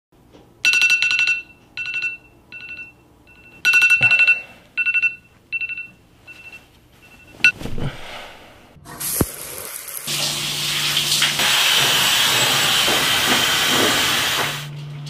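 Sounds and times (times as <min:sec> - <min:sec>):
smartphone alarm beeping: 0:00.6 - 0:07.6.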